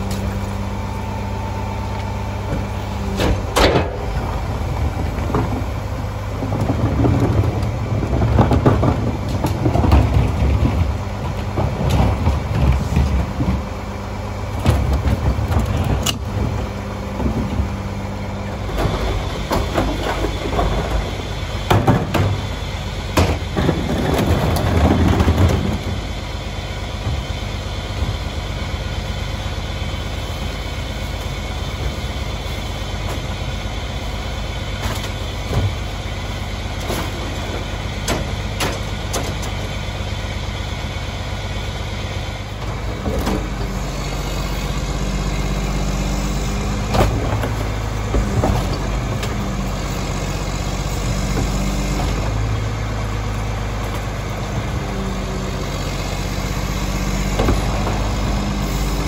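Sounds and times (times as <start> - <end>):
garbage truck idling: 0.0 - 59.0
trash tumbling into hopper: 2.4 - 28.7, 30.7 - 39.8, 42.5 - 55.5, 56.4 - 59.0
trash cart lids banging: 2.5 - 4.5, 18.4 - 26.0, 36.8 - 39.6.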